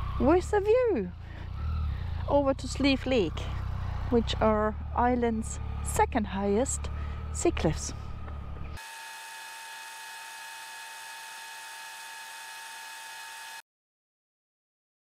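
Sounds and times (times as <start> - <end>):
low motorcycle rumble: 0.0 - 8.8.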